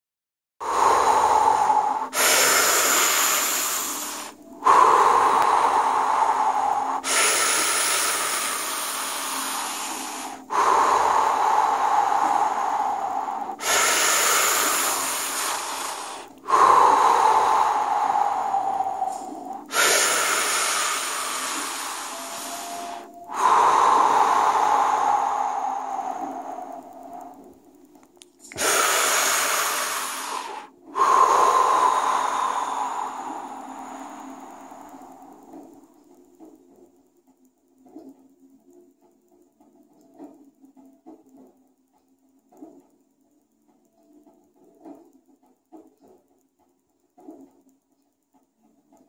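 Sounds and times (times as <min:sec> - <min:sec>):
deep forceful breathing: 0:00.6 - 0:37.0.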